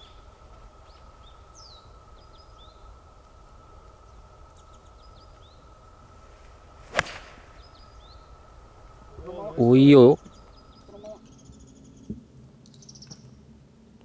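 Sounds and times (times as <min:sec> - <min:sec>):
bird chirps: 0:00.0 - 0:03.1, 0:03.9 - 0:05.8, 0:06.9 - 0:08.6, 0:09.8 - 0:13.4
golf club striking ball: 0:06.7 - 0:08.0.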